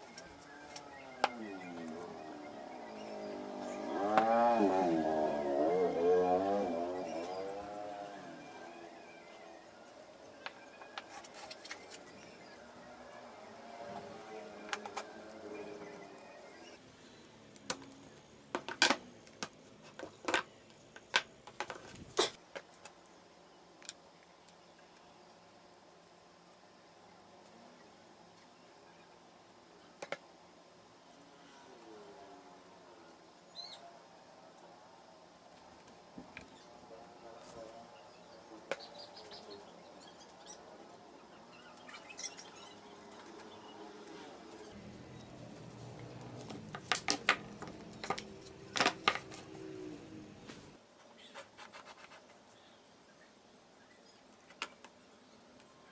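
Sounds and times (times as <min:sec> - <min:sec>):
birds chirping faintly: 0:00.0 - 0:55.9
wooden pieces tapping and clicking: 0:46.4 - 0:49.5.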